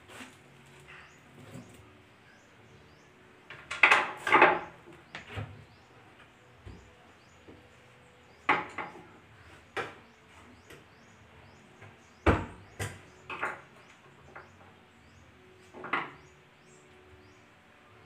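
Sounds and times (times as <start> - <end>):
knocks against plywood cabinet: 12.2 - 13.0.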